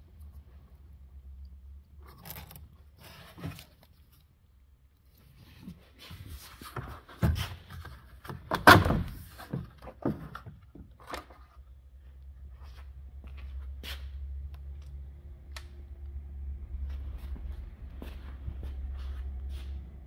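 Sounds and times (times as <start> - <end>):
steady low hum: 11.8 - 20.0.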